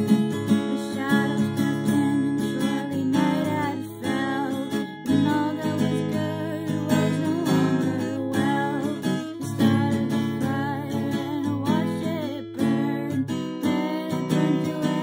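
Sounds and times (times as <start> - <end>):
acoustic guitar strumming chords: 0.0 - 15.0
person singing: 0.0 - 15.0.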